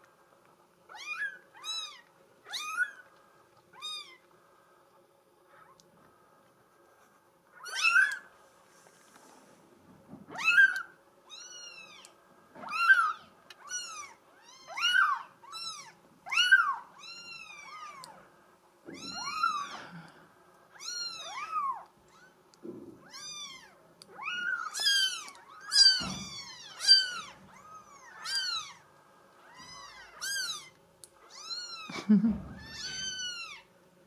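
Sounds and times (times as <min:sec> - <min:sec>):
kittens mewing: 0:18.9 - 0:20.2, 0:23.0 - 0:28.8, 0:29.4 - 0:33.7.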